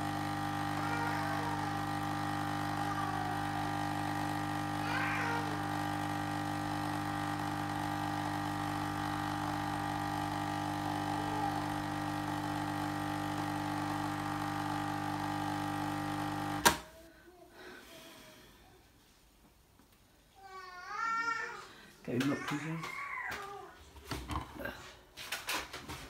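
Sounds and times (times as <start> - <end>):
coffee streaming into glass: 0.0 - 16.6
coffee machine pump humming: 0.0 - 16.8.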